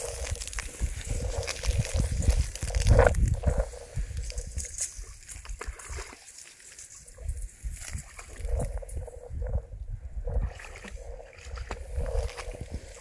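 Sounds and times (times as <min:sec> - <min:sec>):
dog splashing in shallow water: 0:05.0 - 0:06.5.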